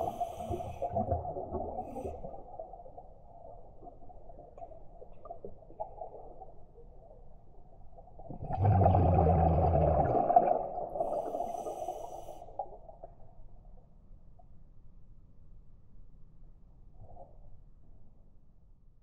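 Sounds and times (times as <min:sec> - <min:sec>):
gurgling rush of bubbles: 0:00.0 - 0:06.6, 0:08.2 - 0:12.7.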